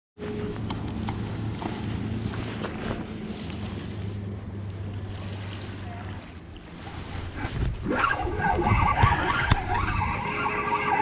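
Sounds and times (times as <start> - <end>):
wind noise on microphone: 6.7 - 11.0.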